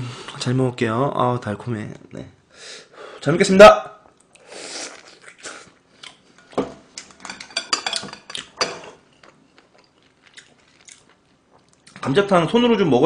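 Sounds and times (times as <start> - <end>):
metal tongs clinking on dish: 7.2 - 8.9.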